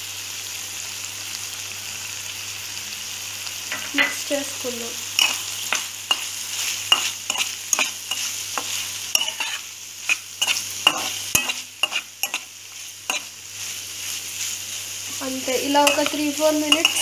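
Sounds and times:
vegetables sizzling: 0:00.0 - 0:17.0
metal spatula scraping a pan: 0:05.2 - 0:17.0.

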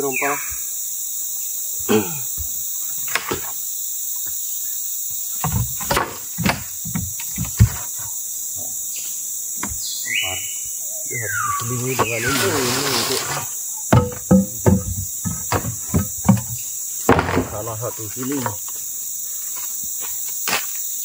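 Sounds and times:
high insect drone: 0:00.0 - 0:21.0
wooden planks knocking: 0:05.4 - 0:08.1, 0:12.0 - 0:17.8.

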